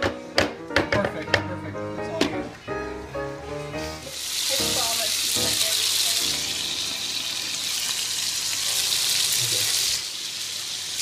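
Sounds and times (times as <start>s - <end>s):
food sizzling in a pan: 3.8s - 11.0s.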